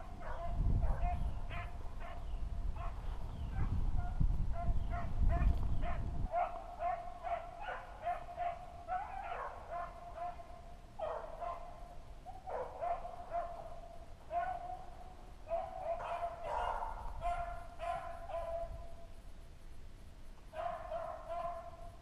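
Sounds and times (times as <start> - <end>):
dogs baying: 4.6 - 18.7.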